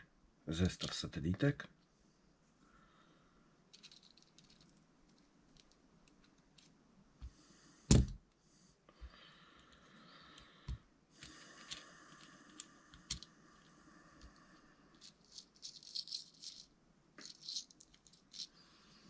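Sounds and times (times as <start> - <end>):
small metal parts clicking and rattling: 3.7 - 6.7, 11.2 - 13.7, 14.9 - 18.6.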